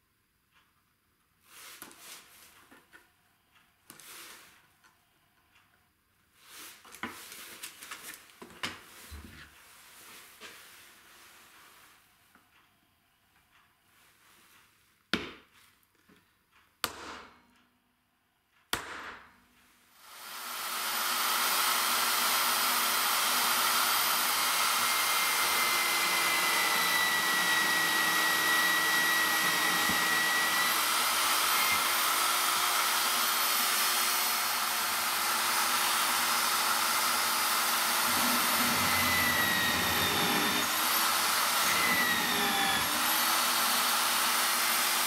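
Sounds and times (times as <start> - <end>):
electric drill drilling metal: 20.0 - 45.0.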